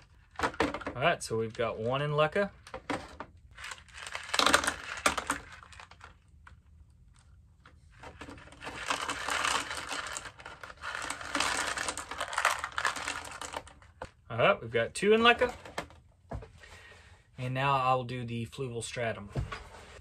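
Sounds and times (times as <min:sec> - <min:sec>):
clay pebbles clattering into plastic pot: 0:00.1 - 0:06.6, 0:08.0 - 0:14.1.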